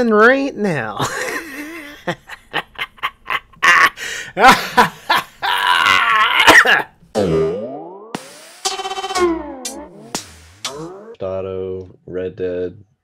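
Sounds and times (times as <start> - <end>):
cut-up sound clips: 7.2 - 11.2.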